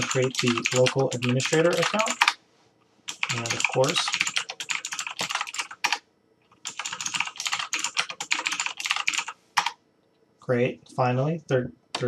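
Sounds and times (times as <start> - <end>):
keyboard typing: 0.0 - 2.4, 3.1 - 9.8.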